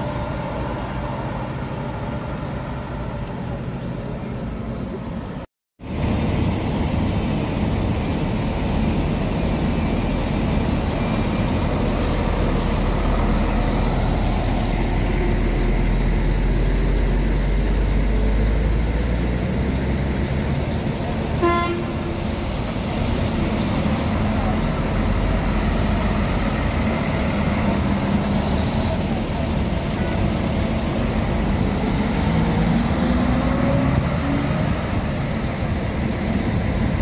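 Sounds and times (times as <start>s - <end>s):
bus diesel engine rumbling: 0.0s - 37.0s
horn toot: 21.4s - 22.1s.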